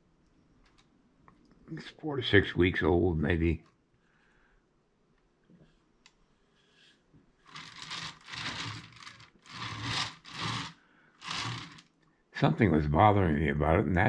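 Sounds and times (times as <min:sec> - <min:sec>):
wood scraping on workbench: 0:07.5 - 0:11.8.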